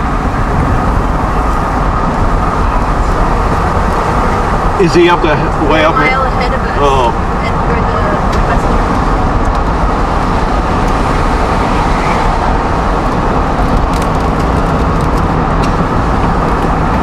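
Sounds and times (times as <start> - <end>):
wind and road noise in car: 0.0 - 17.0
rain ticking on windshield: 6.1 - 17.0.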